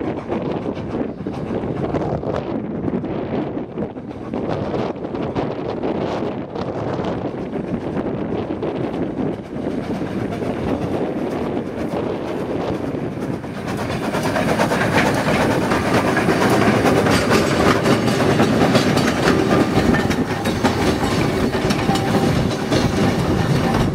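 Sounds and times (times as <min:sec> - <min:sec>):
steam train passing: 0:00.0 - 0:23.9
wheels clattering over rail joints: 0:06.1 - 0:23.9.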